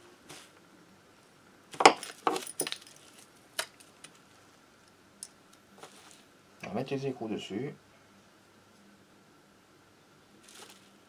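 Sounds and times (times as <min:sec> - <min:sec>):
metal nuts clinking: 0:01.8 - 0:03.0.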